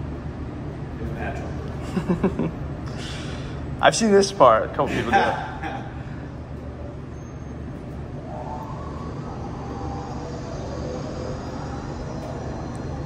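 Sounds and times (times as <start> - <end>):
kitchen machinery humming: 4.6 - 13.0.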